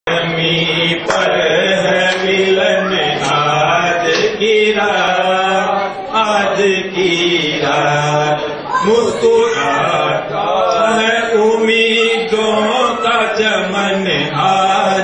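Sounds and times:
man singing into microphone: 0.0s - 15.0s.

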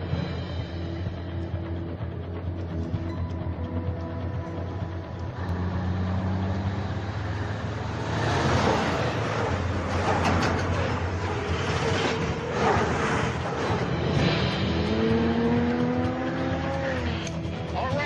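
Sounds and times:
diesel truck engine droning: 0.0s - 18.0s
tyre and road noise: 0.0s - 18.0s.

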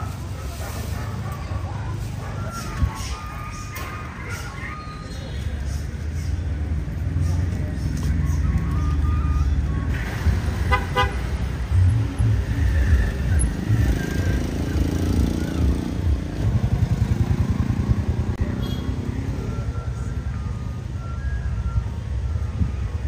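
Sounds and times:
traffic rumble: 0.0s - 23.0s
vehicle horn toots: 10.7s - 11.3s.

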